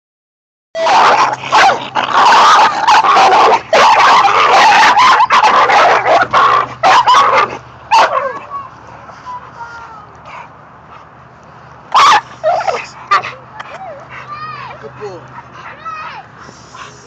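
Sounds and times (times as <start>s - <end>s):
dogs barking and yelping: 0.8s - 9.1s, 11.9s - 17.0s.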